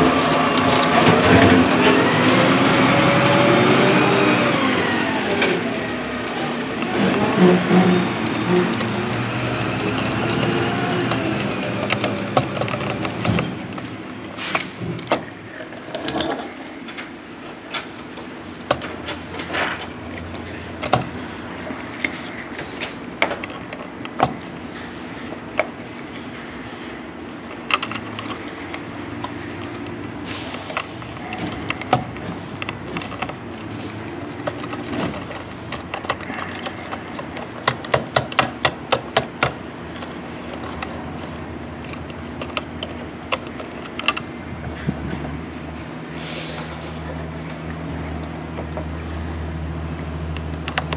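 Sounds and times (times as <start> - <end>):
toy truck clicks and taps: 8.2 - 13.9, 27.5 - 44.3, 50.3 - 50.9.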